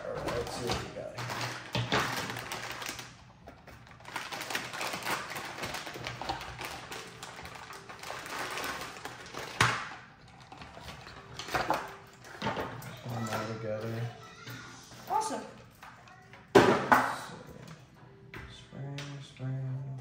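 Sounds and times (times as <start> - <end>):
plastic bags crinkling: 0.0 - 14.1.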